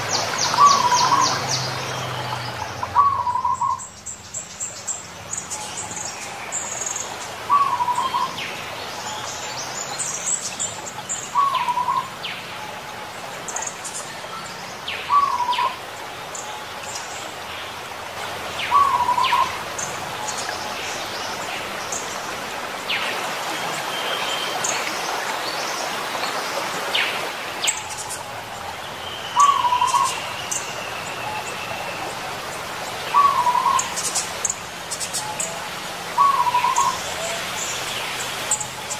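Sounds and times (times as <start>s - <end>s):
steady outdoor hiss: 0.0s - 38.9s
dove cooing: 33.1s - 33.9s, 36.2s - 37.0s.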